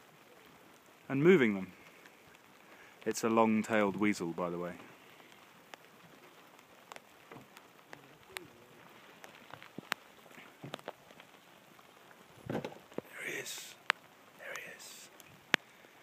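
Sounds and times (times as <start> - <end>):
faint rain patter: 0.0 - 16.0
raindrop taps: 1.7 - 16.0.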